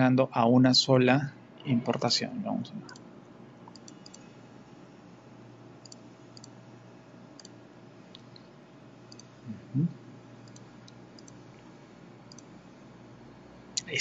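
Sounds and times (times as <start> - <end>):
computer mouse clicks: 3.7 - 4.3, 5.8 - 6.6, 7.4 - 8.5, 9.1 - 9.3, 10.4 - 11.4, 12.3 - 12.5.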